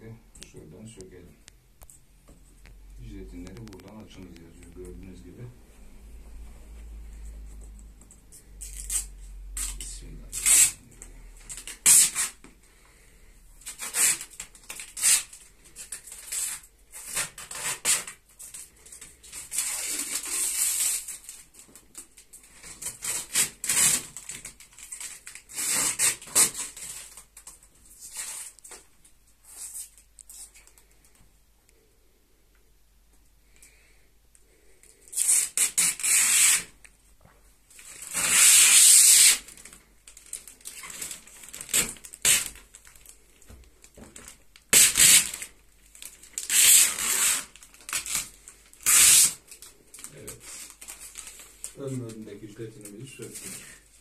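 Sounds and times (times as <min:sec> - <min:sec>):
plastic film crinkling: 0:13.6 - 0:31.2, 0:37.7 - 0:54.0.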